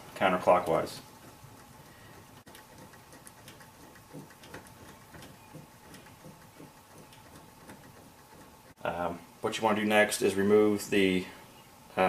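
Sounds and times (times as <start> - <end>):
headlamp mechanism ticking: 0.6 - 8.8.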